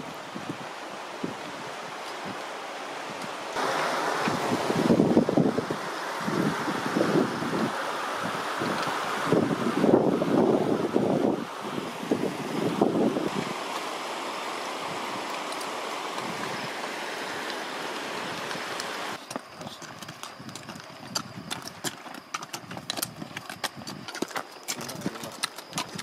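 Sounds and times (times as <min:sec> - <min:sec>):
hooves clopping on stony trail: 0:00.0 - 0:04.4, 0:13.3 - 0:26.0
river rushing: 0:00.0 - 0:19.2.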